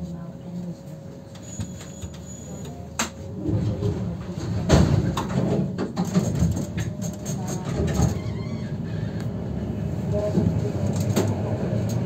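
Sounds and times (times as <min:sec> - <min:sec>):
tram wheels rumbling on rails: 0:03.2 - 0:12.0
tram humming: 0:06.6 - 0:12.0.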